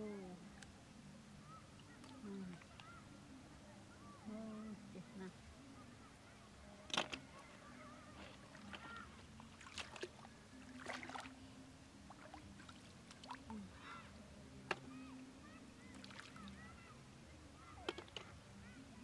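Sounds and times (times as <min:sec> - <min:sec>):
shallow water sloshing and splashing: 0:08.4 - 0:11.4, 0:12.1 - 0:13.5, 0:15.9 - 0:16.6.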